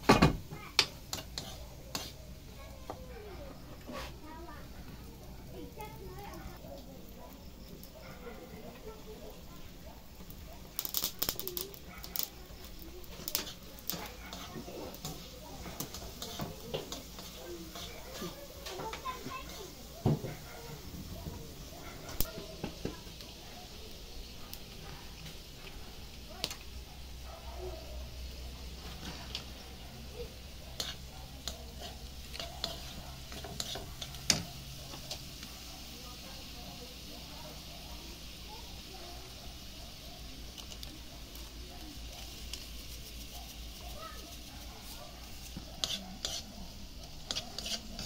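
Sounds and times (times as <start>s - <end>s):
spatula stirring food in wok: 0.0s - 27.2s, 27.9s - 48.0s
frying sizzle: 0.0s - 48.0s
plastic spoon scraping a wok: 1.1s - 2.3s, 3.6s - 4.2s, 12.7s - 19.6s, 30.8s - 35.2s, 44.8s - 48.0s
firewood clicking and knocking: 10.7s - 12.4s.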